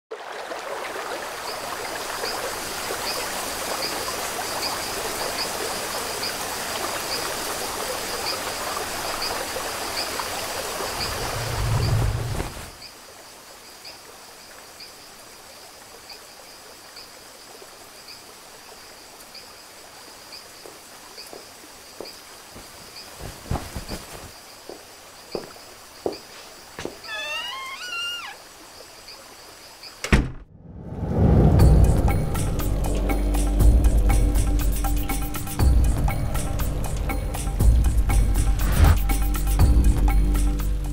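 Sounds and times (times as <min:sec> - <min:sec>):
rain falling: 0:00.1 - 0:30.1
high insect-like chirps: 0:22.0 - 0:30.0.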